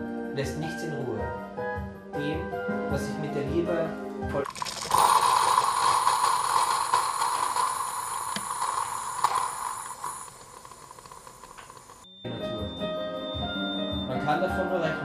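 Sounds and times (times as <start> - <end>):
coffee machine hissing and gurgling: 4.4 - 12.1.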